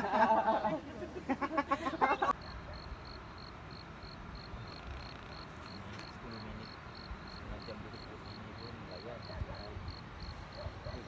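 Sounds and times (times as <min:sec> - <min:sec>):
insect chirping: 0:02.4 - 0:11.0.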